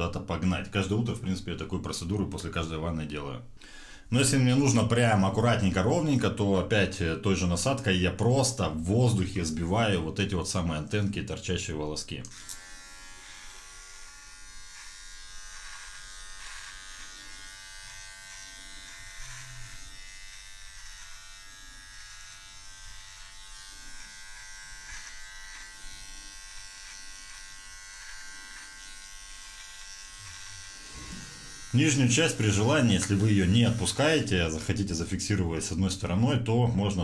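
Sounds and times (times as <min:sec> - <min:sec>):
electric beard trimmer buzzing: 0:12.3 - 0:34.5.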